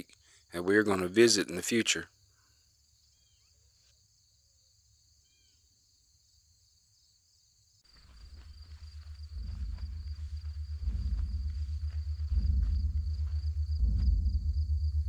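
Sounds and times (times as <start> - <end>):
outdoor sound: 0.0 - 15.0
high insect trill: 0.7 - 15.0
faint bird chirps: 2.0 - 12.5.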